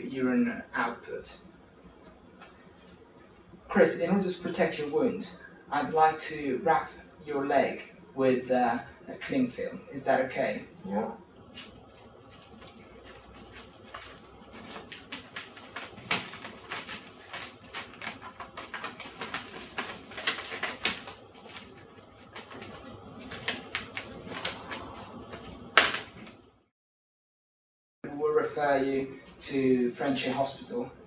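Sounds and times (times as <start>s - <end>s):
cling film crinkling: 11.4s - 26.5s.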